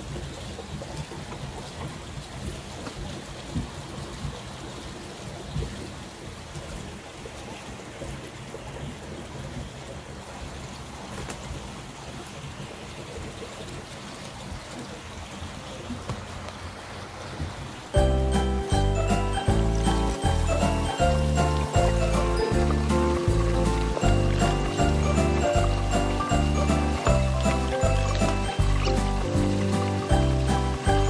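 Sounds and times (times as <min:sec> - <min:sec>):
light rain hissing: 0:16.0 - 0:31.0.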